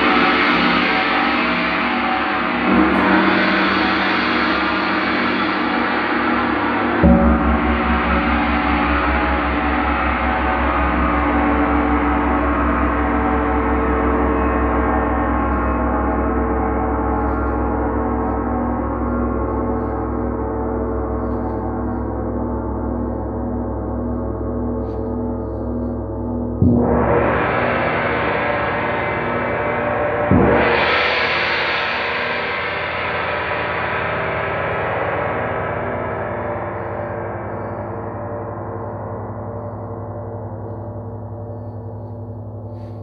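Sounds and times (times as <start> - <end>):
gong ringing: 0.0 - 31.2.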